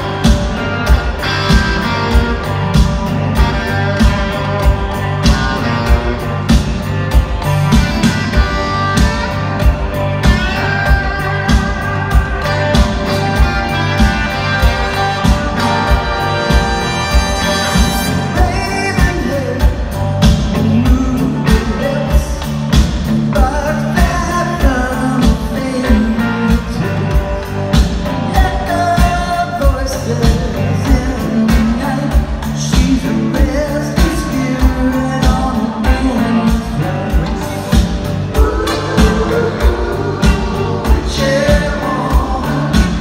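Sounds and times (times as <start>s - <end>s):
live rock band playing: 0.0s - 43.0s
person singing lead vocals: 17.6s - 27.5s, 28.1s - 43.0s.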